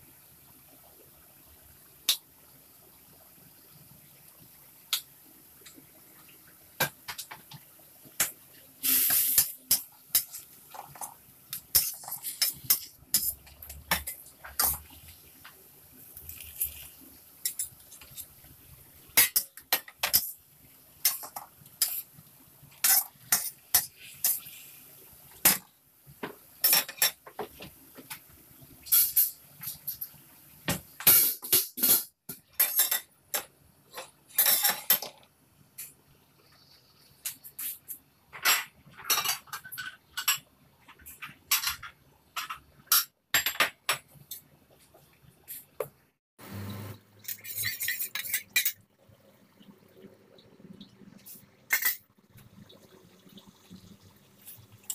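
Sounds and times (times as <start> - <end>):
food sizzling: 0.6 - 32.0.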